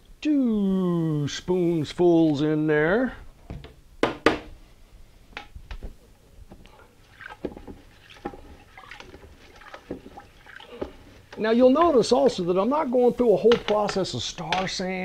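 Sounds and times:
faint liquid sounds: 6.5s - 13.9s
utensils knocking and tapping: 13.4s - 14.8s.

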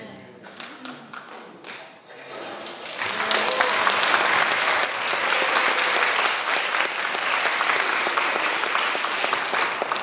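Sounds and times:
crowd applauding: 2.7s - 10.0s.

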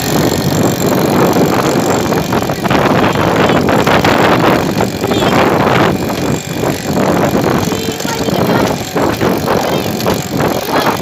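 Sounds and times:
small scooter engine running: 0.0s - 11.0s
wind buffeting microphone: 0.0s - 11.0s.

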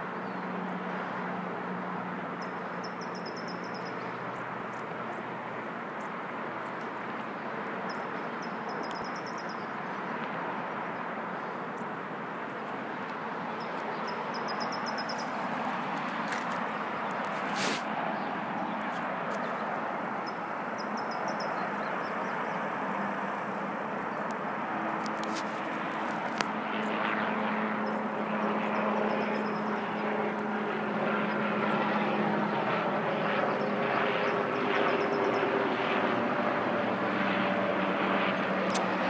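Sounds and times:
distant traffic rush: 0.0s - 39.0s
bird singing trilled song: 2.4s - 4.0s, 13.6s - 15.4s, 20.2s - 22.6s.

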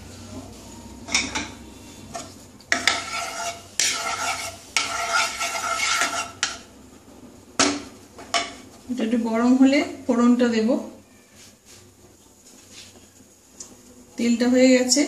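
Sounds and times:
wooden spatula scraping a pan: 1.8s - 6.6s.

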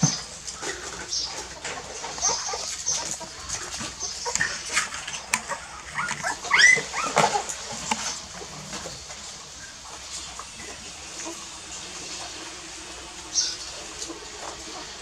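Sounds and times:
puppies squealing and whimpering: 1.1s - 10.0s.

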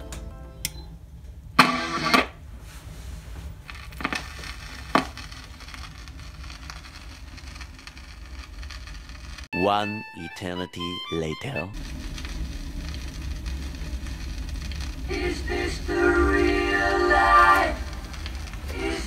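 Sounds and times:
stylus scraping vinyl record: 1.6s - 9.5s, 10.4s - 19.0s
low hum: 10.8s - 19.0s.

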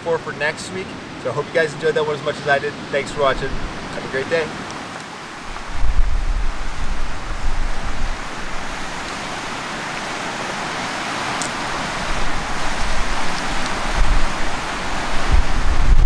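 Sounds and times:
surf on a cobble beach: 0.0s - 16.0s
wind buffeting the microphone: 2.8s - 4.7s, 5.3s - 16.0s.

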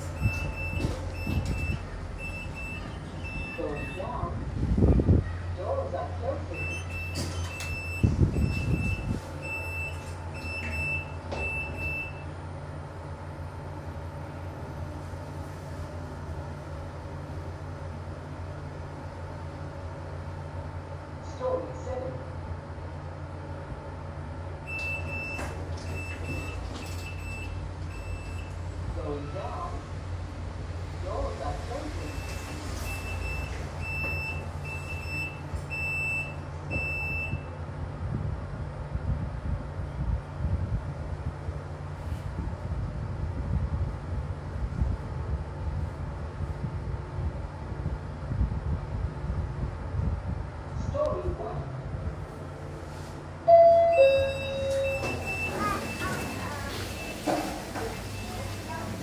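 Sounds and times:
lift doors sliding shut: 0.0s - 4.2s, 6.5s - 12.2s, 24.6s - 28.6s, 32.0s - 37.4s, 53.5s - 59.0s
low hum of lift: 0.0s - 59.0s
short high beeps: 53.5s - 57.3s.

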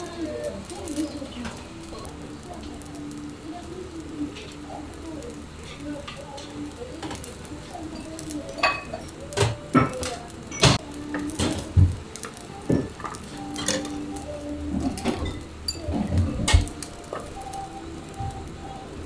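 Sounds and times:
metal pans and utensils clinking: 5.6s - 17.4s.

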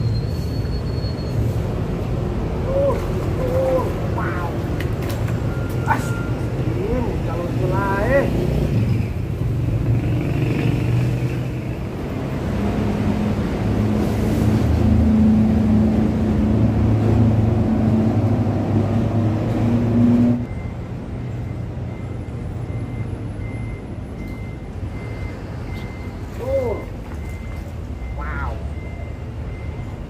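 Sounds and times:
large vehicle engine drone: 0.0s - 30.0s
road noise: 0.0s - 30.0s
faint high beep: 5.5s - 6.4s, 20.4s - 30.0s.

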